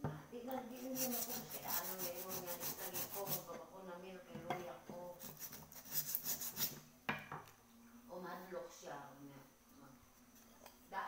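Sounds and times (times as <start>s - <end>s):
sandpaper rasping on metal pot: 0.7s - 3.5s, 5.2s - 6.8s.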